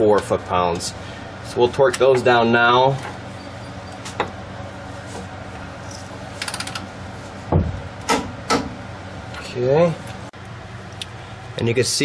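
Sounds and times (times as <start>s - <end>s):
steady low hum: 0.0s - 12.0s
ratchet wrench clicking: 6.4s - 6.9s
sharp metal knocks: 7.6s - 8.8s.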